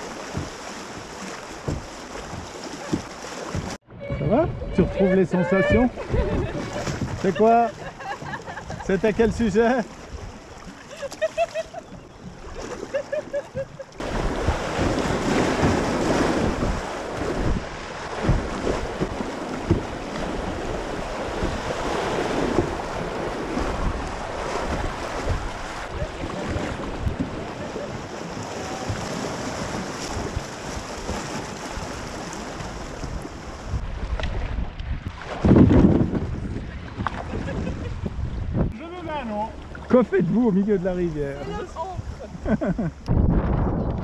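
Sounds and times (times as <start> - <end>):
rushing river water: 0.0 - 37.4, 38.0 - 43.0
wind buffeting microphone: 3.6 - 10.8, 13.6 - 39.2, 41.3 - 44.0.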